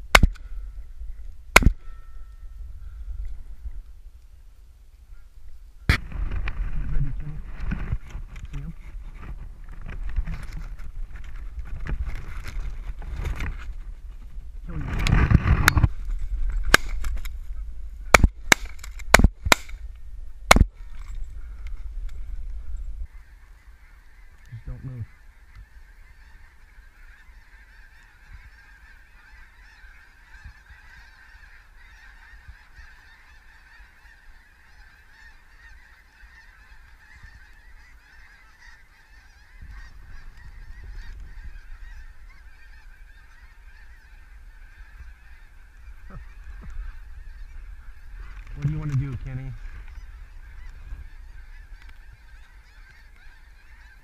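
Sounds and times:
geese honking: 23.1s - 54.0s.

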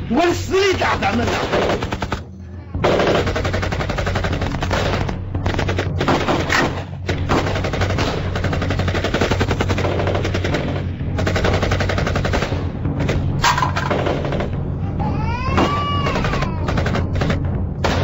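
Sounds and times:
automatic gunfire: 0.9s - 14.6s, 15.7s - 18.0s.

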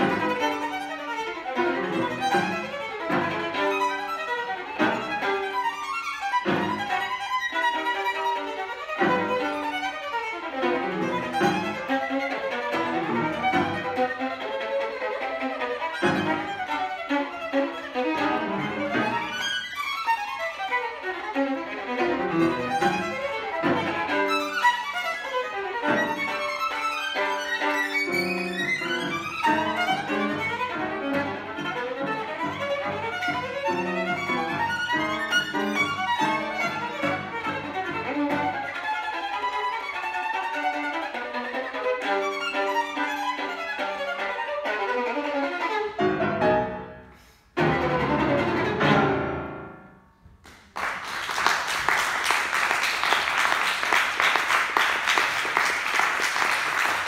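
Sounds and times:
violin playing fast passage: 0.0s - 49.7s, 50.8s - 57.0s
audience applause: 50.4s - 57.0s.

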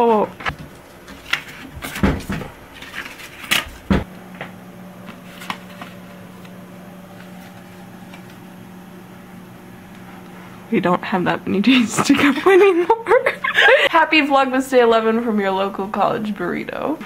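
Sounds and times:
steady low hum: 0.0s - 17.0s
paper cards rustling: 0.5s - 3.8s, 5.0s - 8.4s.

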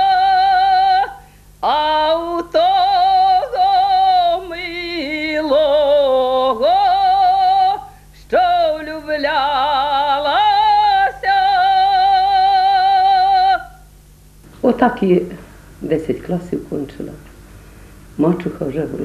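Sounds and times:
elderly woman singing unaccompanied: 0.0s - 13.8s.

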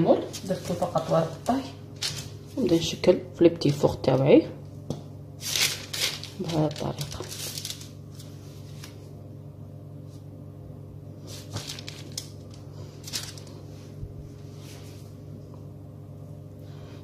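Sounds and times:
steady low hum: 0.0s - 17.0s
paper rustling: 2.0s - 2.3s, 5.4s - 9.1s, 11.2s - 15.0s
dough squishing from piping bag: 11.2s - 14.0s.

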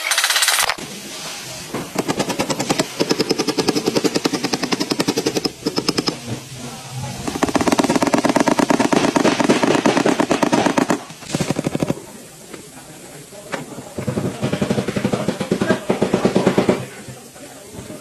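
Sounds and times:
hammer rattling on sheet metal: 1.8s - 6.4s.

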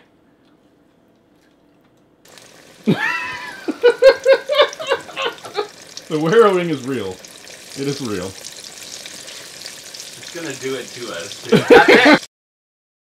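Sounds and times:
frying sizzle: 2.3s - 12.3s.

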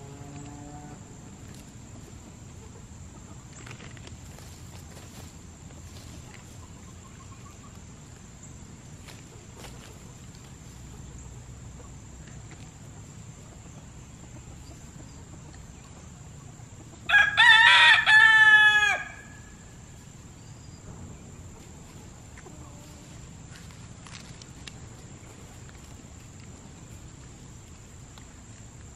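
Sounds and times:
rooster crowing: 17.1s - 19.6s.

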